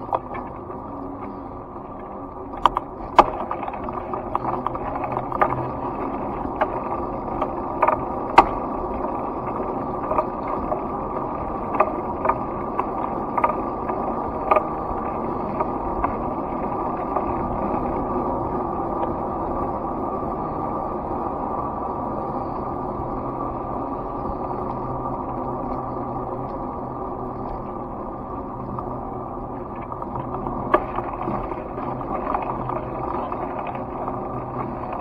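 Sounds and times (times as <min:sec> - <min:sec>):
sharp clicks and rattles: 0:00.0 - 0:19.2, 0:27.3 - 0:35.0
wind and tyre noise: 0:00.0 - 0:35.0.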